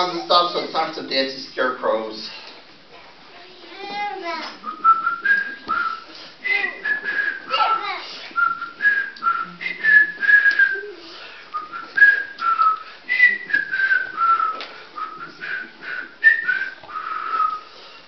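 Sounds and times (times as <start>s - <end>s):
person whistling a tune: 4.6s - 17.7s.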